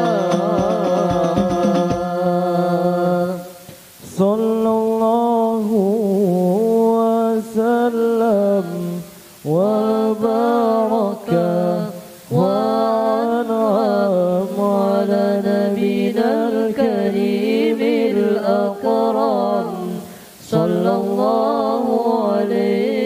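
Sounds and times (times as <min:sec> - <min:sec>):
drum-backed devotional singing: 0:00.0 - 0:23.0
person singing unaccompanied: 0:00.0 - 0:23.0.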